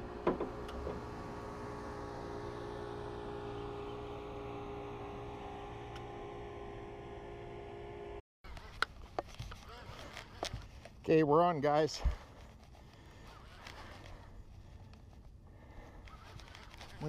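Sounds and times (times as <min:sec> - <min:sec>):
distant boat engine hum: 0:00.0 - 0:08.2.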